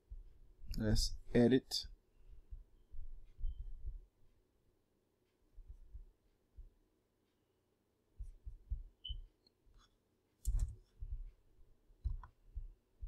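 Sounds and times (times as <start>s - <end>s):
dull low thumps: 0.0s - 1.3s, 2.3s - 4.2s, 5.6s - 6.8s, 8.2s - 9.1s, 10.5s - 11.4s, 12.0s - 13.0s
mouse and keyboard clicking: 10.4s - 10.8s.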